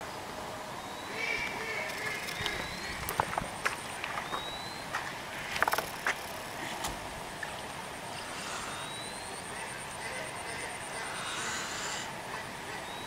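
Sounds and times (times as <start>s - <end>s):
steady outdoor hiss: 0.0s - 13.0s
cluster of clicks: 1.8s - 3.4s.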